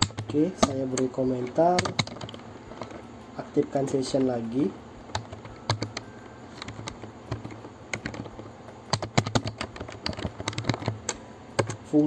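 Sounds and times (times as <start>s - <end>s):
computer keyboard typing: 0.0s - 2.9s, 5.1s - 11.8s.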